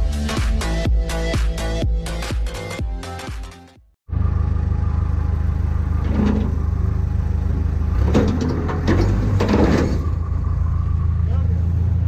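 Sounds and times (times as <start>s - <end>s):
large engine running: 4.1s - 12.0s.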